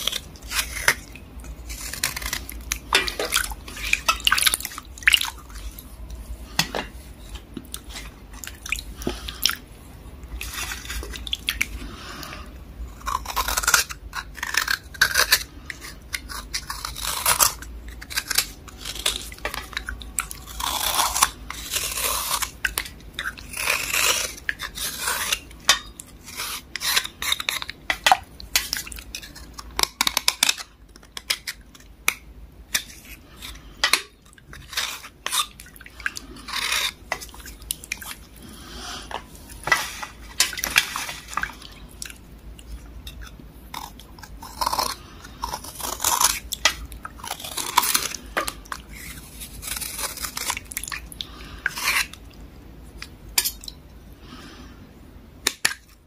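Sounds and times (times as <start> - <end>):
knife scraping soft block: 1.7 - 4.1.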